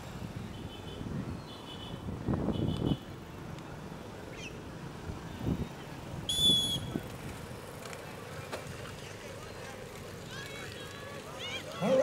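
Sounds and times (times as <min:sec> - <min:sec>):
sports whistle blast: 0:06.3 - 0:07.0.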